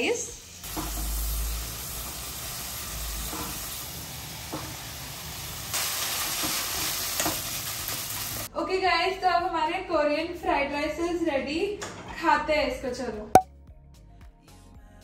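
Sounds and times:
food sizzling in a frying pan: 0.0 - 8.5.

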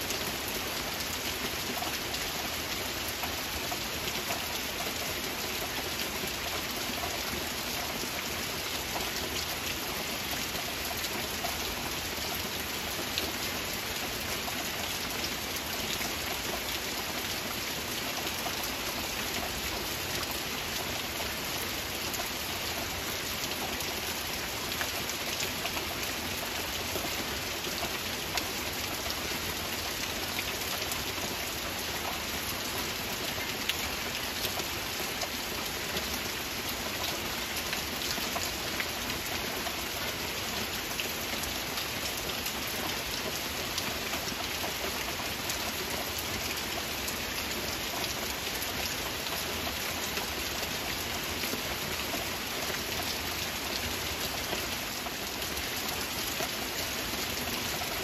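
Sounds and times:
steady rain hiss: 0.0 - 58.0.

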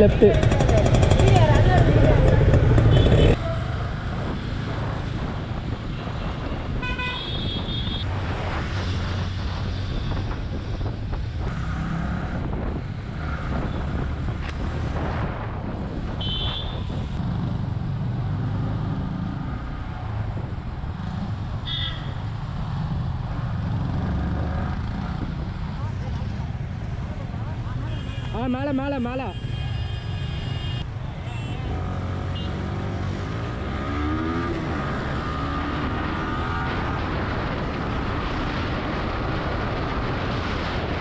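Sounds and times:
motorcycle engine and road rumble: 0.0 - 41.0
vehicle horns tooting: 2.8 - 3.4, 6.8 - 8.1, 16.2 - 17.0, 27.8 - 32.7.

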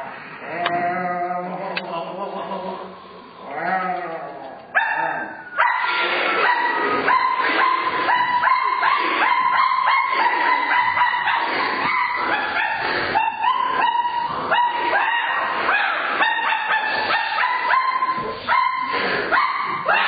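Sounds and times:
high-pitched yipping and yelping: 4.8 - 20.0.

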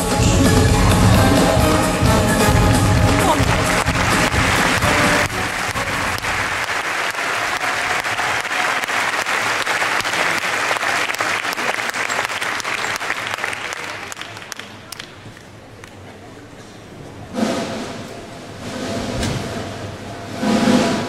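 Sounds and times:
stage music: 0.0 - 13.3
large audience applauding: 0.8 - 16.0.

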